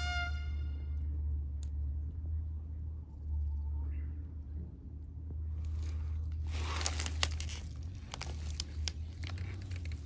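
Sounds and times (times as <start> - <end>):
dry leaves crackling and rustling: 5.6 - 10.0
twigs snapping: 5.6 - 10.0.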